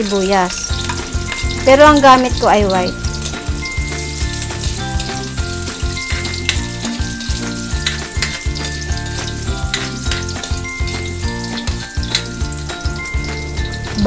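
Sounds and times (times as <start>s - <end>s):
onion sizzling in oil: 0.0s - 14.0s
upbeat ukulele music: 1.0s - 14.0s
metal spatula scraping pan: 5.7s - 11.2s.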